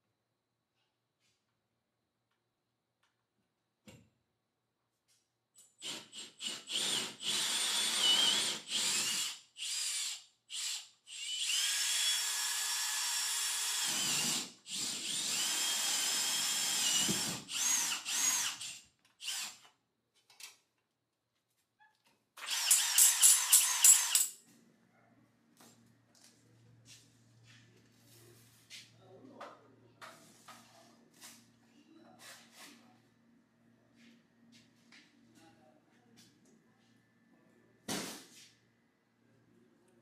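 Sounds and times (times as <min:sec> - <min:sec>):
power drill motor whine: 0:06.4 - 0:19.6, 0:22.5 - 0:24.2.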